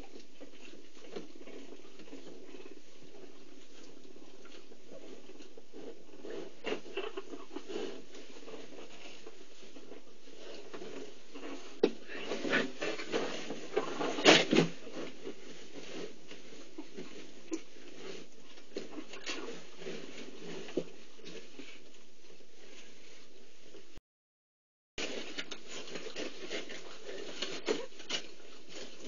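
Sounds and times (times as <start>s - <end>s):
soft rustling and licking: 0.0s - 14.2s.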